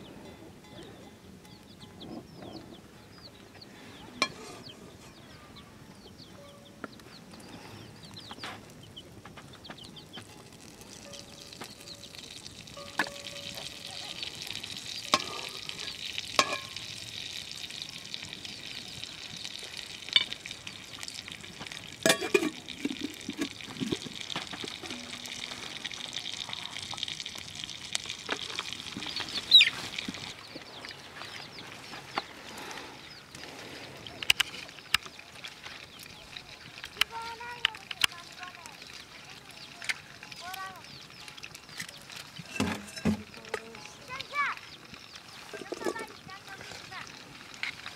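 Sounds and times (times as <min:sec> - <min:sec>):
fat sizzling in a wok: 0:09.8 - 0:47.9.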